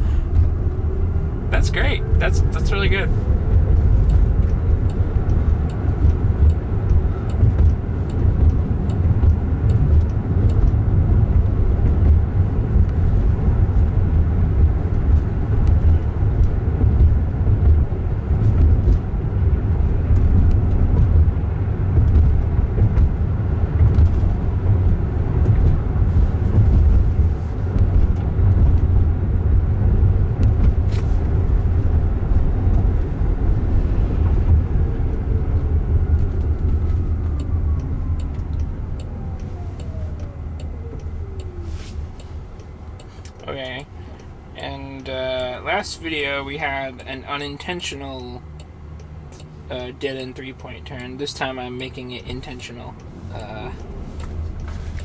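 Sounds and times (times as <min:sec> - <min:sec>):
car road rumble: 0:00.0 - 0:55.0
faint clicks: 0:36.2 - 0:43.5.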